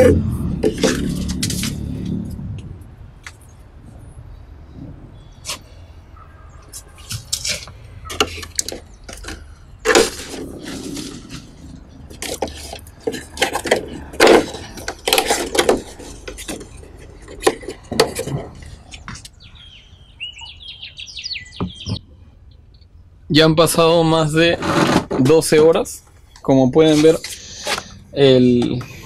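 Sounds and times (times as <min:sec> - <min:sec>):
bird chirps: 0:03.4 - 0:09.9, 0:18.8 - 0:23.2.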